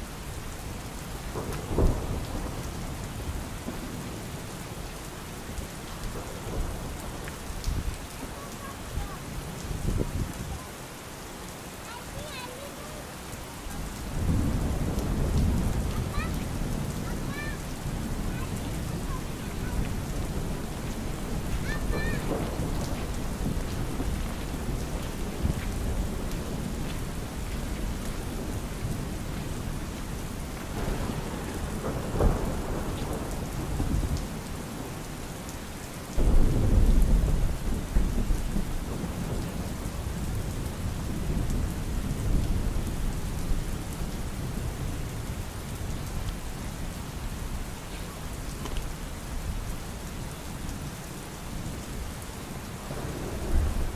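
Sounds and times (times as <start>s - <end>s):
rain on an umbrella: 0.0s - 53.9s
thunder rumbling: 1.1s - 4.9s, 5.5s - 10.4s, 13.6s - 35.1s, 36.1s - 46.1s, 52.7s - 53.9s.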